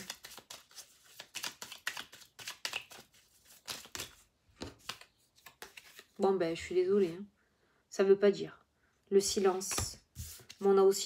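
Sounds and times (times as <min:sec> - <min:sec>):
cards being shuffled: 0:00.0 - 0:06.2, 0:09.6 - 0:10.7.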